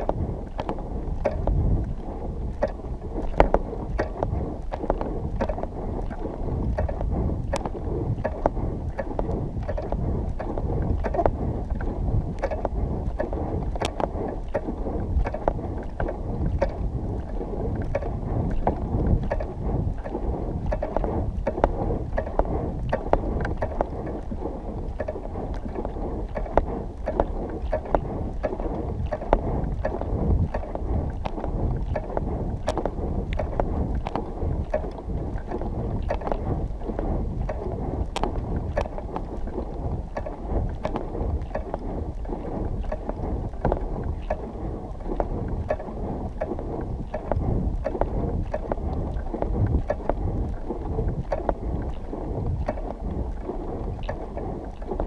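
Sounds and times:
wind buffeting microphone: 0.0 - 55.0
small clicks and knocks: 2.6 - 42.2.

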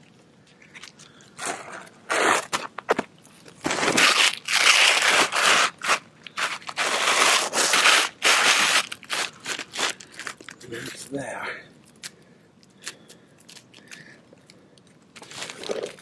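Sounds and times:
scraping of roof shingles: 3.6 - 10.0.

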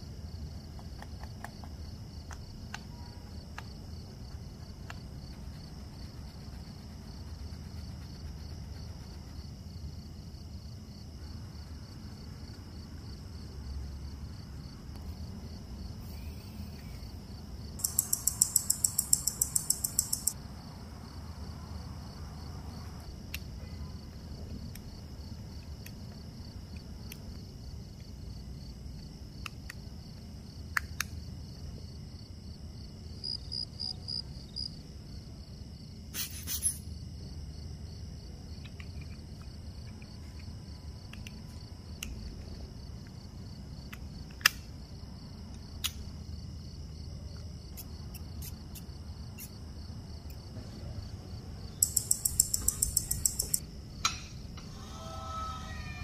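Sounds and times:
faint hum and high whine: 0.0 - 56.0
metal watch parts clicking: 17.8 - 20.4, 51.8 - 53.6
watch movement ticking: 17.8 - 20.4.

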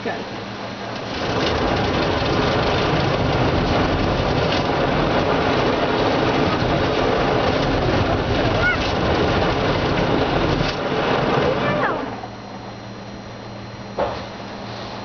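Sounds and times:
car wash brushes rushing: 0.8 - 12.4.

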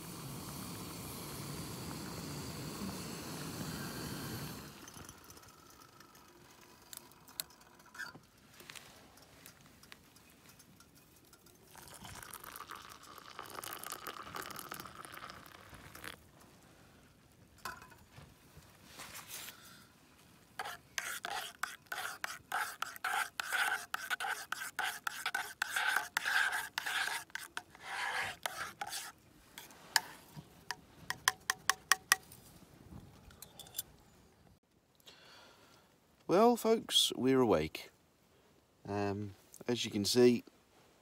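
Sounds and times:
gas stove hissing: 0.0 - 4.9
hot water pouring: 0.0 - 8.0, 11.4 - 16.2.

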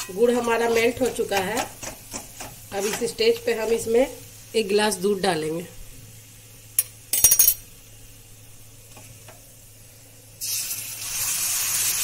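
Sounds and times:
loud steady sizzle: 0.0 - 12.0
utensils clattering: 6.8 - 7.6.

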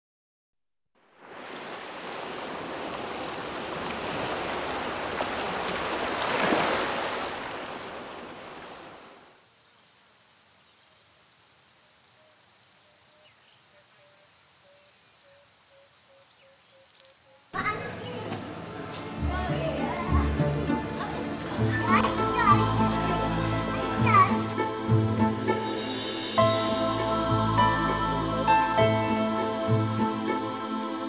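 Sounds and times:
surf washing over rocks: 1.2 - 9.1
insects chirping: 1.4 - 31.0.

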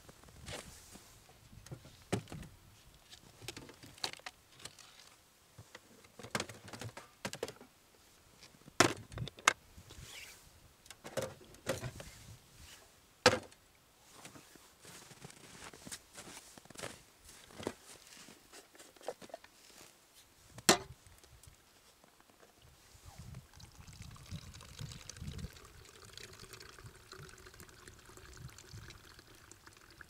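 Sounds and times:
plastic box set down: 8.8 - 9.6, 13.3 - 13.6.

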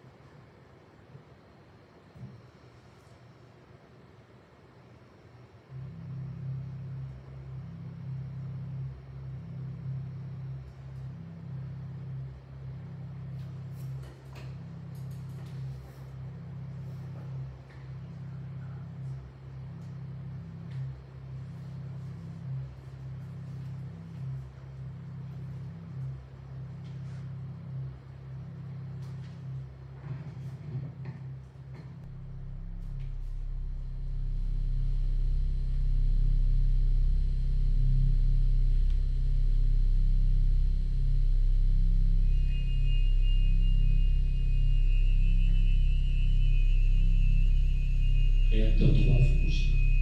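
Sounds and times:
low room hum: 0.0 - 50.0
low rumbling drone soundtrack: 5.7 - 50.0.

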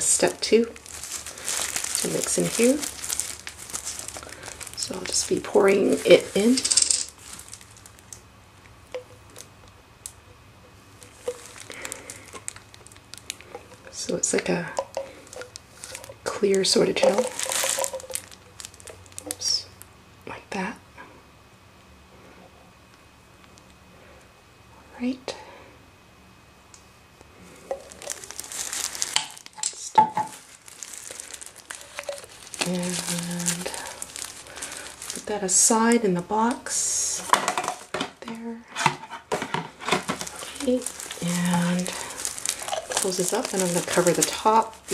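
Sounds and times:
plastic crinkling and rustling: 0.0 - 8.3, 10.9 - 19.9, 27.4 - 44.9
gel pouring with faint squishing: 17.0 - 19.4, 30.4 - 33.0, 40.2 - 44.9.

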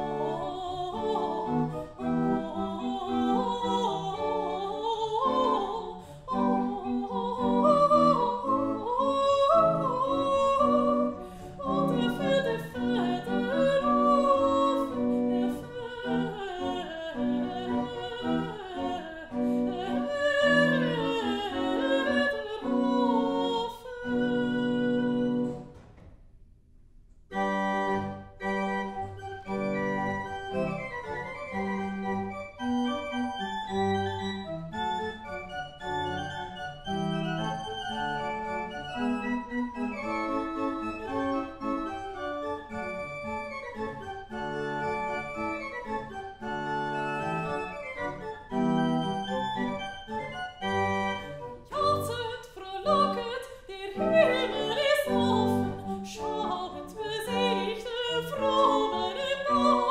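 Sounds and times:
soprano singing: 0.0 - 25.6, 34.9 - 59.9
pipe organ: 27.3 - 52.1.

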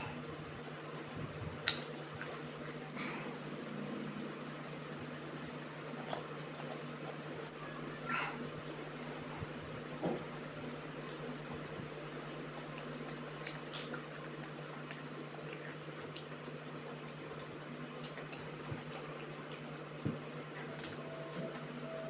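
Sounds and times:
steady low hum: 0.0 - 22.0
wet chewing and squishing: 12.2 - 21.7.

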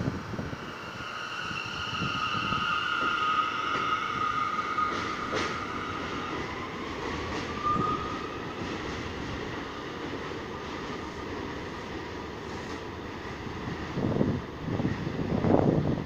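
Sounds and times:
high steady train whine: 0.0 - 16.0
train wheels rumbling: 0.0 - 16.0
short squeal: 0.7 - 6.0.

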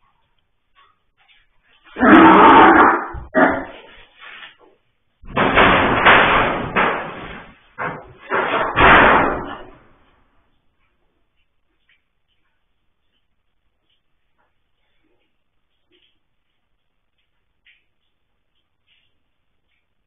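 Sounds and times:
rough animal calls: 1.9 - 3.9.

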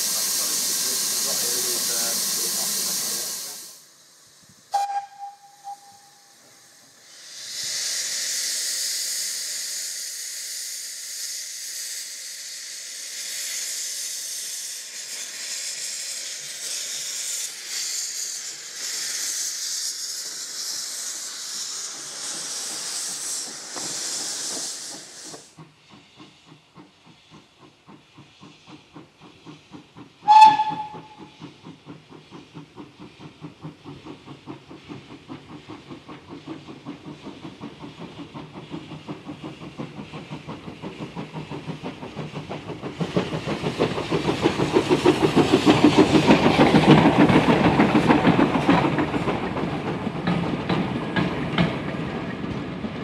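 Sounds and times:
loud hiss of steam: 0.0 - 53.0
steam locomotive exhaust beats: 0.0 - 53.0
steam locomotive whistle: 4.7 - 6.5, 30.2 - 31.4.

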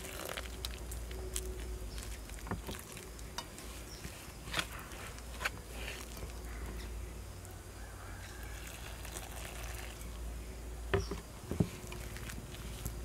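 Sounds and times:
utensil stirring dough: 0.0 - 6.9, 11.5 - 13.0
low steady hum: 0.0 - 13.0
hot water pouring into bowl: 8.6 - 10.1.

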